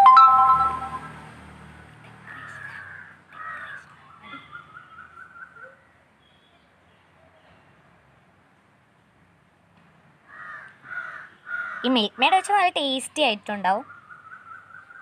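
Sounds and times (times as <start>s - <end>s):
crows cawing: 2.2s - 4.6s, 10.3s - 11.9s.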